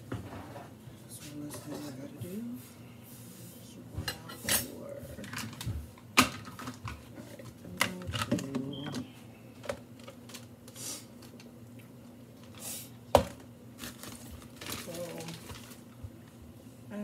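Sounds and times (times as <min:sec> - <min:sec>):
utensils and dishes clattering: 0:04.0 - 0:08.6.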